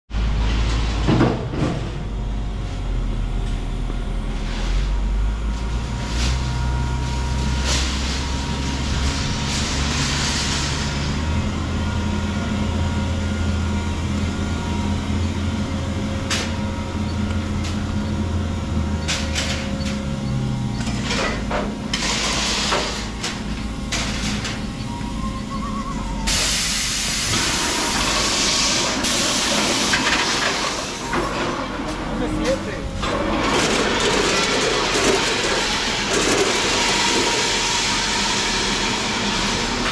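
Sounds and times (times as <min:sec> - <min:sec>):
machinery low rumble: 0:00.1 - 0:39.9
machinery clanks: 0:07.5 - 0:39.9
hiss bursts: 0:26.0 - 0:31.0.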